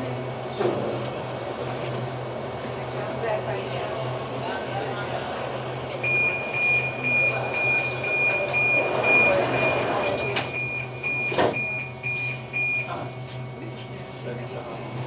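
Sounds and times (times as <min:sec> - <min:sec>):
steady low hum: 0:00.0 - 0:15.0
voices: 0:00.0 - 0:15.0
rapid high warning beeps: 0:06.0 - 0:15.0.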